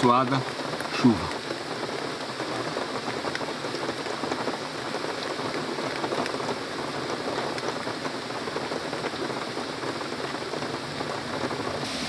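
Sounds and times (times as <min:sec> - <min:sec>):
heavy rain hissing: 0:00.0 - 0:12.0
raindrops tapping on leaves: 0:00.0 - 0:12.0.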